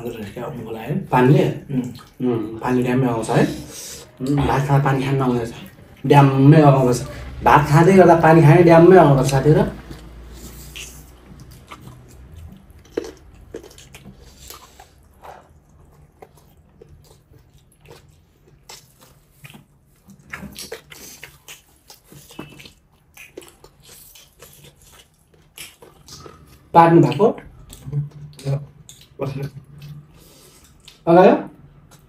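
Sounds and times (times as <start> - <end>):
person chewing: 1.3 - 7.4, 9.2 - 32.0
mouth clicks and smacks: 1.6 - 2.2, 9.2 - 32.0.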